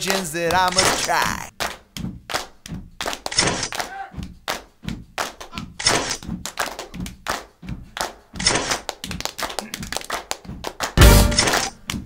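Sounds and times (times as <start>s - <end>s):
percussion beat: 0.0s - 1.5s, 11.0s - 11.8s.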